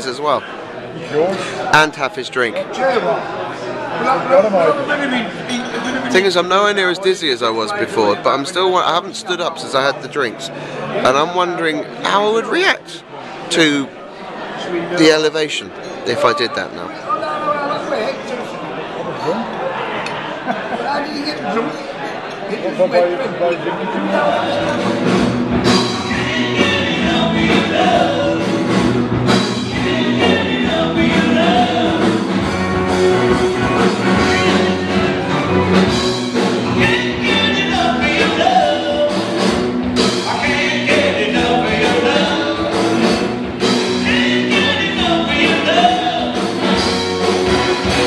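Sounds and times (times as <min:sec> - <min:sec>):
person singing: 0:24.0 - 0:32.6, 0:33.8 - 0:36.0, 0:36.6 - 0:47.0
rock band playing live: 0:24.3 - 0:48.0.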